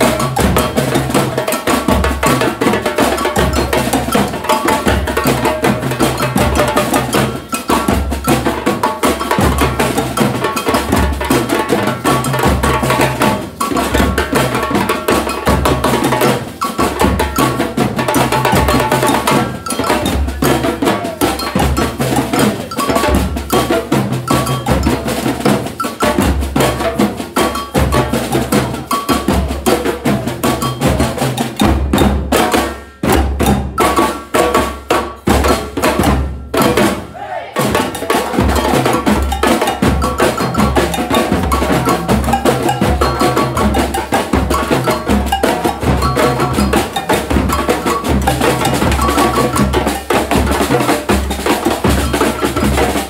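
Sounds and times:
cowbell: 0:00.0 - 0:37.0, 0:37.6 - 0:53.0
snare drums: 0:00.0 - 0:53.0.

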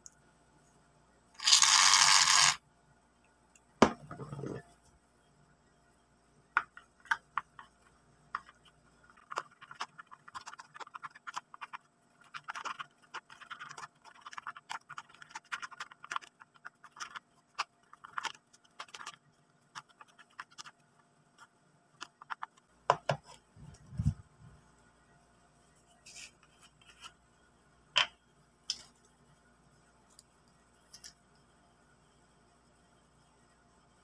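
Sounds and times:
stick stirring thick slime: 0:07.1 - 0:20.8.

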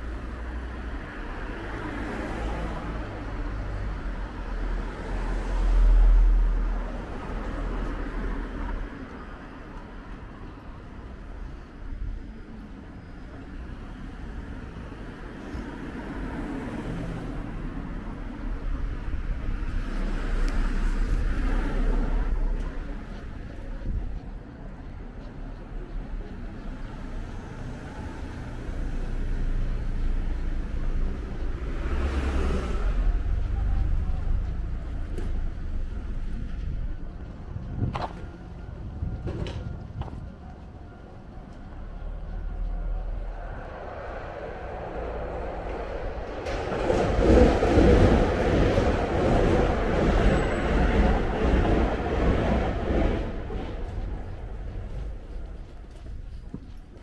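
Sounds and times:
minivan engine rumble: 0:00.0 - 0:57.0
train passing: 0:00.0 - 0:57.0.

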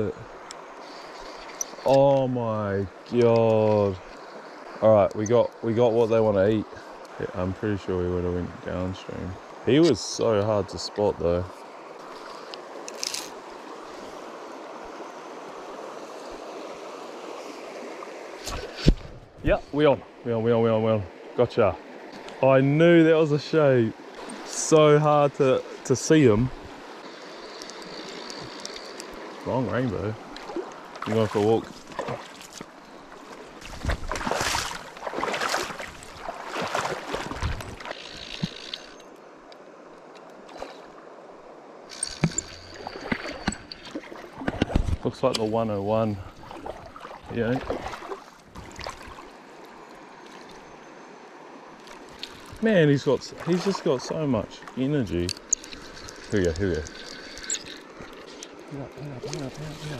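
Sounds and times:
river water splashing: 0:08.8 - 0:20.3, 0:21.1 - 0:59.9
fishing reel winding: 0:27.6 - 0:29.1, 0:55.3 - 0:57.9.

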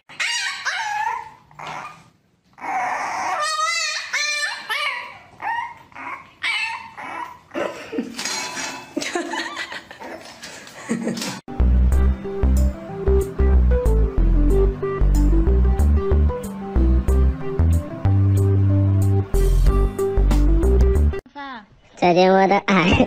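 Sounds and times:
puppy yipping and whining: 0:00.1 - 0:07.6.

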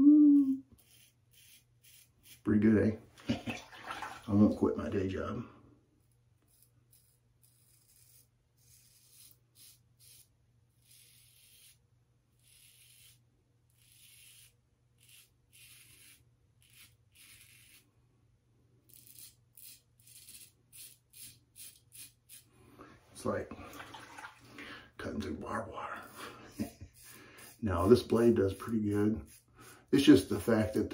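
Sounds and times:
razor scraping stubble: 0:00.7 - 0:02.7, 0:06.0 - 0:17.9, 0:18.8 - 0:22.5, 0:25.2 - 0:30.9.

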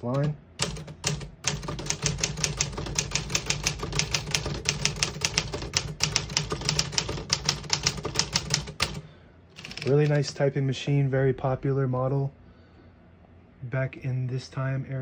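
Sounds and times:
typewriter typing: 0:00.0 - 0:09.0, 0:09.6 - 0:10.2.

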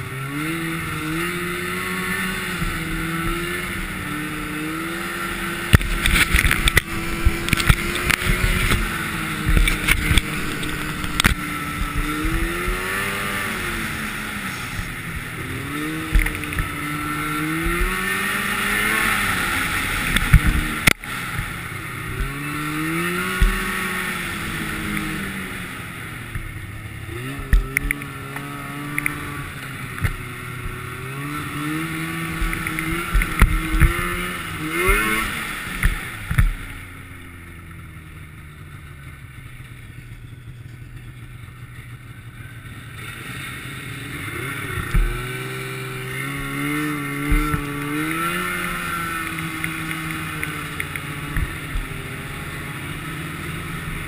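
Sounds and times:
snowmobile engine running: 0:00.0 - 0:54.0
knocks and thumps over bumps: 0:05.6 - 0:13.2, 0:14.7 - 0:18.2, 0:20.1 - 0:21.5, 0:27.2 - 0:29.2, 0:32.3 - 0:35.2, 0:44.8 - 0:45.4, 0:46.4 - 0:51.9.

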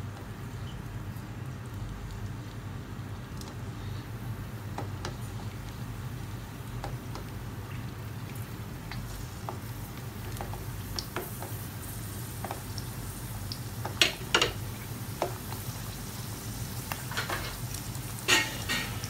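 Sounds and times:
potatoes sizzling in hot oil: 0:04.3 - 0:19.0.

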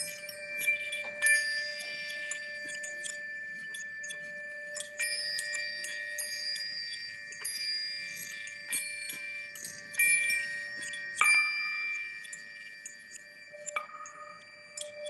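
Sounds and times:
chime-like metallic ringing: 0:00.0 - 0:15.0.

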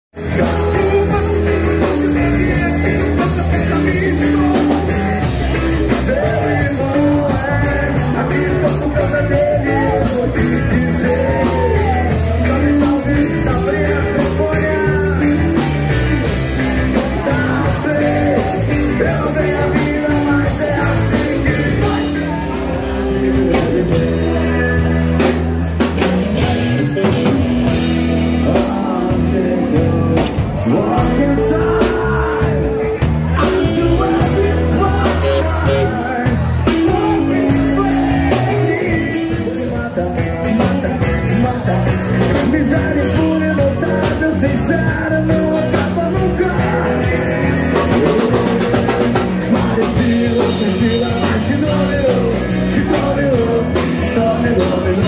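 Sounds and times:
drum kit: 0:00.1 - 0:55.0
electric bass: 0:00.1 - 0:55.0
acoustic and electric guitars: 0:00.2 - 0:55.0
man singing into microphone: 0:00.2 - 0:55.0.

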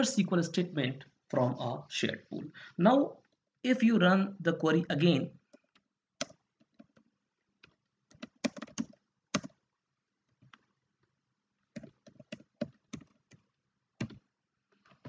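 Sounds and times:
typing on computer keyboard: 0:05.6 - 0:09.6, 0:11.7 - 0:13.4, 0:14.0 - 0:14.2.

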